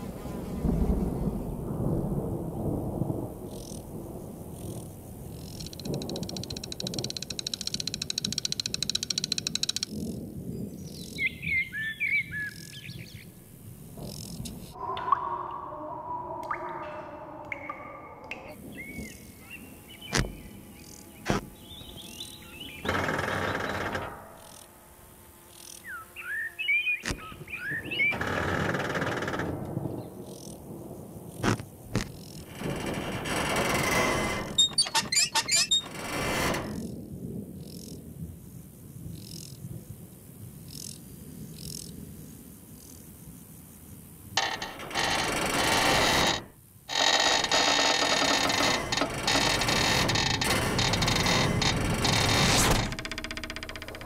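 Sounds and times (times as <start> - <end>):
buzzing rattles: 2.6 - 10.3, 13.7 - 14.8, 20.0 - 26.2, 27.0 - 37.0, 44.4 - 54.0
loud mechanical rattle: 32.4 - 36.8, 44.4 - 54.0.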